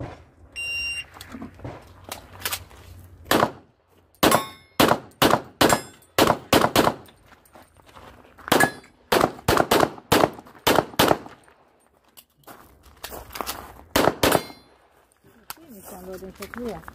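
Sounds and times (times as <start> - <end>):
handgun shots: 3.3 - 3.6, 4.2 - 7.1, 14.0 - 14.6
steel targets ringing: 4.2 - 4.8, 5.6 - 6.2.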